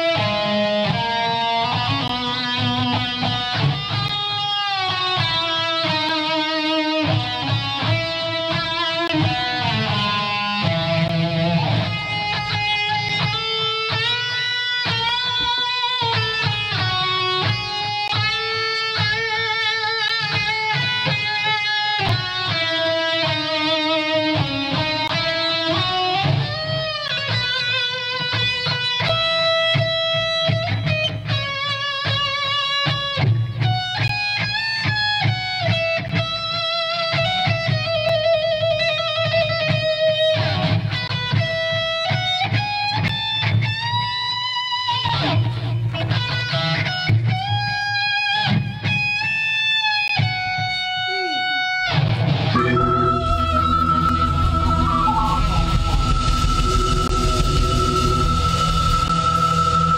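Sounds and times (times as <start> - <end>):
drums: 0.0 - 59.9
electric guitar lead solo: 0.0 - 59.9
electric bass: 52.5 - 59.9.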